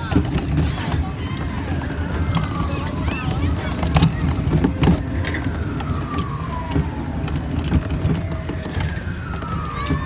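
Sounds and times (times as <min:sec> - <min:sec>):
falling electronic siren tone: 0:08.2 - 0:10.0.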